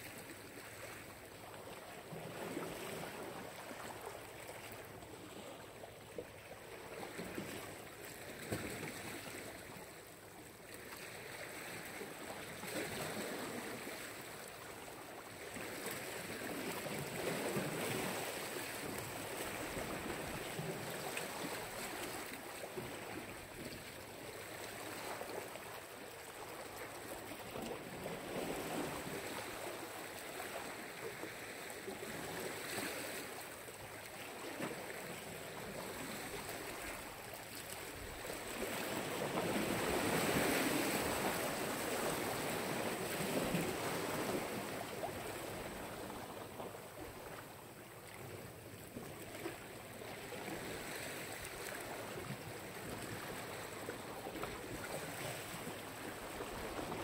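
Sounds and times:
surf washing onto shore: 37.7s - 46.2s.

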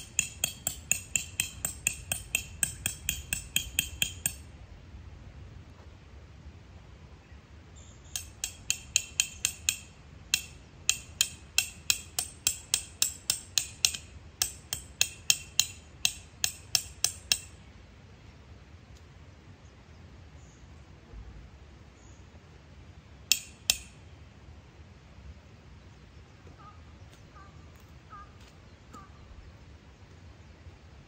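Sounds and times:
hammer striking metal stake: 0.0s - 4.5s, 8.1s - 17.6s, 23.3s - 24.0s.

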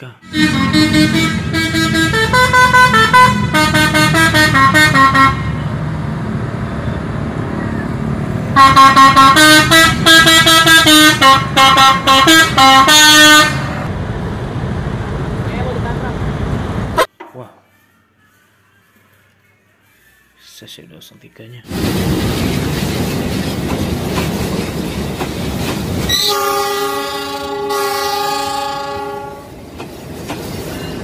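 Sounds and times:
musical air horn: 0.2s - 5.6s, 8.6s - 13.9s, 26.1s - 29.6s
bus engine running: 0.2s - 17.1s, 21.7s - 31.0s.

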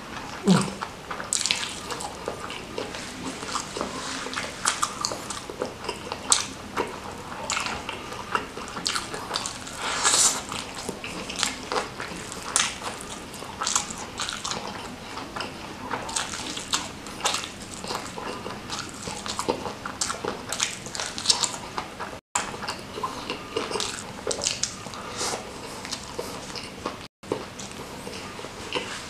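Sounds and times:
crunchy chewing: 0.1s - 29.0s
wet mouth sounds: 0.3s - 6.6s.

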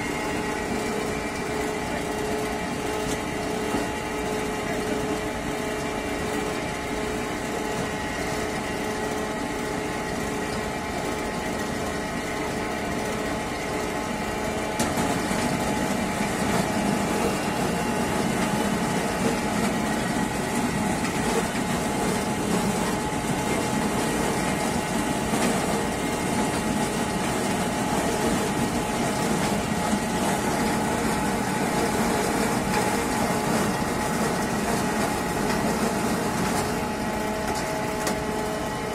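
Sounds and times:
apple press mill grinding: 12.3s - 38.9s.

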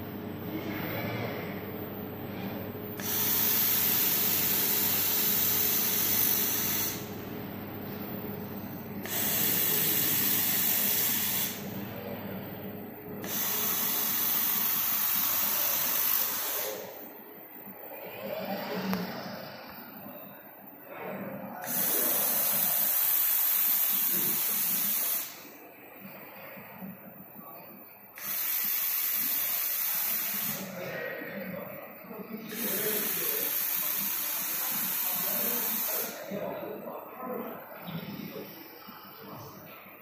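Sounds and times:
low machine hum: 0.0s - 21.6s
laser welding head hissing: 3.0s - 7.1s, 9.0s - 11.7s, 13.2s - 17.0s, 21.6s - 25.5s, 28.2s - 30.9s, 32.4s - 36.3s.

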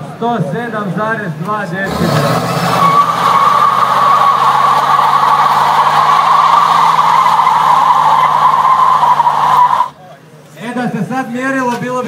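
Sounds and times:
car engine at high revs: 1.8s - 10.0s
tyres squealing: 1.9s - 10.0s.

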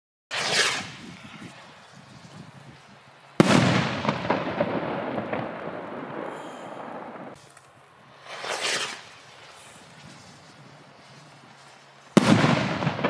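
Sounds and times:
crackling firework pops: 0.3s - 1.2s, 1.9s - 13.0s
firework bang: 0.3s - 1.2s, 3.4s - 7.4s, 8.2s - 13.0s.

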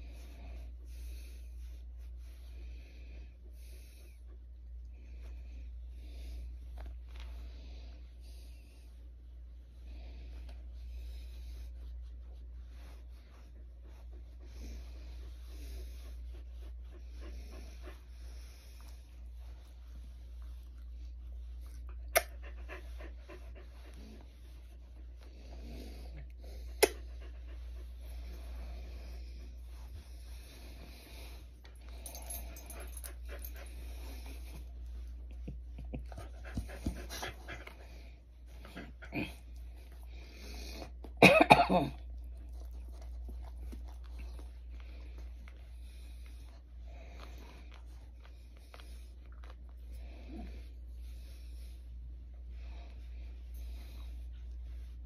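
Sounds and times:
steady low hum: 0.0s - 55.0s
hands rustling blanket: 5.0s - 22.1s
fingers rubbing dog fur: 6.2s - 41.1s.

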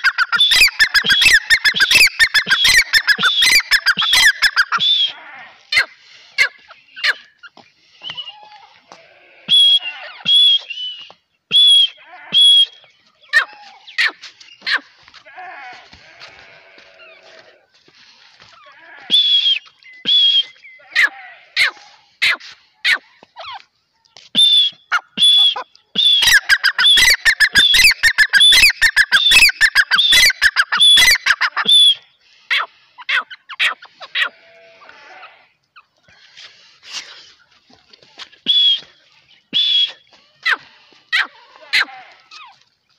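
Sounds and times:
bird calling harshly: 0.0s - 8.6s, 9.5s - 15.0s, 19.1s - 23.6s, 24.4s - 34.5s, 38.4s - 42.6s
person whistling: 9.5s - 12.8s, 38.5s - 38.9s, 39.6s - 40.0s.

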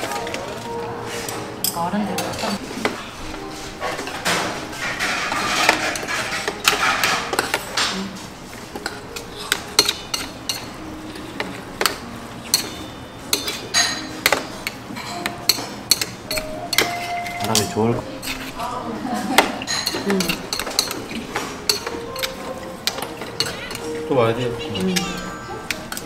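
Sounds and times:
metal chopsticks clicking on metal bowl: 19.7s - 21.0s.

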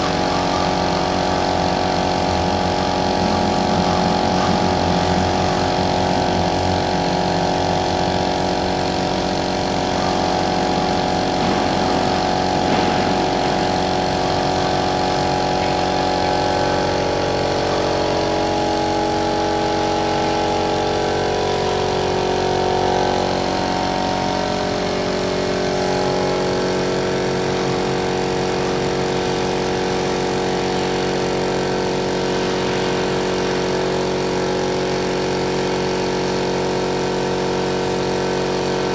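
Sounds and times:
air compressor motor running: 0.0s - 38.9s
spray gun hissing: 0.0s - 38.9s.

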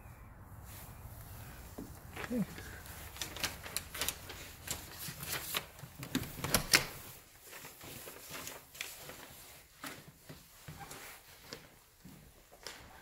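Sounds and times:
footsteps on hardwood floor: 1.7s - 2.4s, 9.6s - 13.0s.

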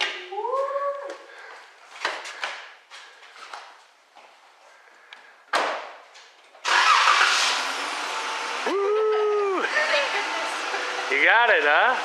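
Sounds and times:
car engine starting and running: 6.6s - 12.0s.

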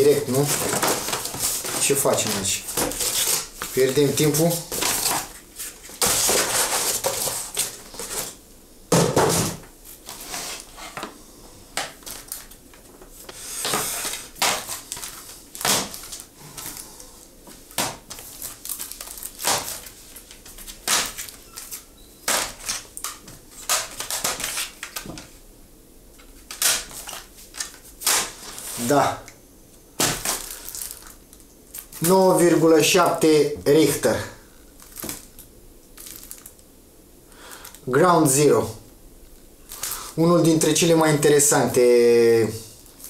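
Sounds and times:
packing crinkling and rustling: 0.0s - 8.4s, 11.9s - 16.9s, 17.5s - 25.3s, 26.2s - 29.1s, 30.0s - 33.2s, 34.7s - 36.7s, 37.5s - 37.9s, 39.6s - 41.5s
cardboard tearing: 0.3s - 8.4s, 13.4s - 16.3s, 17.8s - 25.1s, 26.5s - 29.0s.

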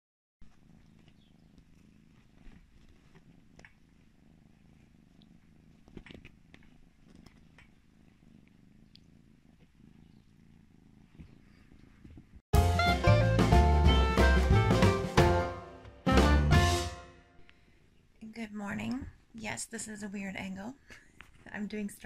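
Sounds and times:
kitten purring: 0.4s - 12.4s
small clicks and rustles: 0.5s - 10.4s, 11.0s - 12.4s.

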